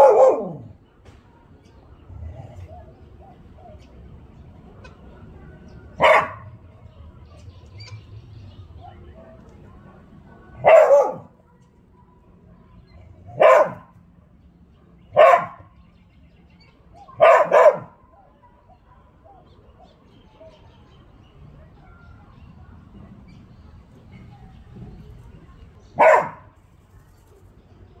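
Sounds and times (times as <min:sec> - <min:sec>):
dog barking: 0:00.0 - 0:00.8, 0:06.0 - 0:06.6, 0:10.6 - 0:11.4, 0:13.3 - 0:14.0, 0:15.1 - 0:15.8, 0:17.1 - 0:18.0, 0:26.0 - 0:26.6.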